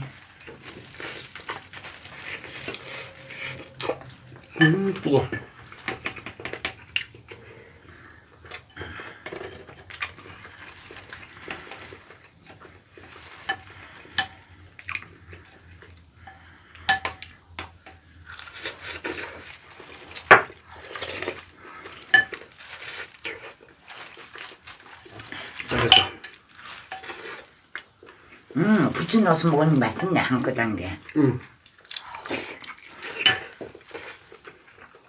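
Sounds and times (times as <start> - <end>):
utensils clinking on dishes: 22.0 - 22.4, 25.7 - 26.3, 33.0 - 33.7.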